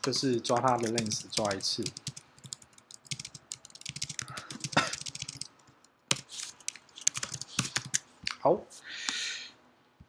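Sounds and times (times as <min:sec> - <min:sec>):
computer keyboard typing: 0:00.0 - 0:08.0.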